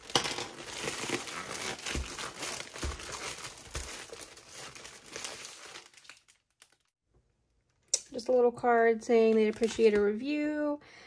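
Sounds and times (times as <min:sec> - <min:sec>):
packaging crackling and tearing: 0:00.0 - 0:07.0, 0:09.2 - 0:10.0.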